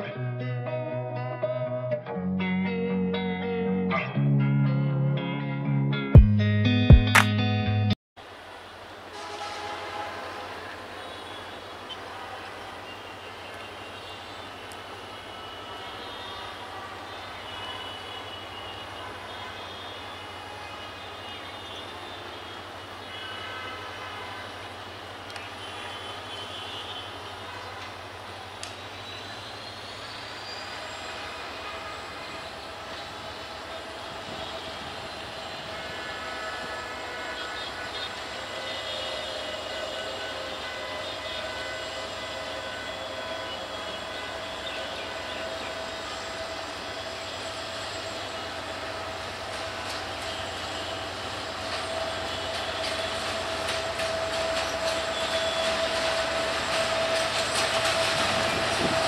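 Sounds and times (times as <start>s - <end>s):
locomotive engine drone: 0.0s - 59.0s
locomotive engine running: 30.2s - 59.0s.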